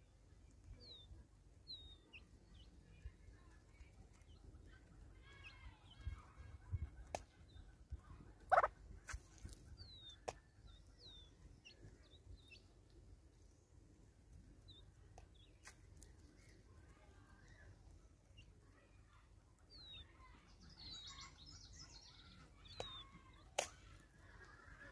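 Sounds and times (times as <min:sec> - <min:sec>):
soft bird clucking: 0:03.8 - 0:12.7, 0:14.6 - 0:24.9.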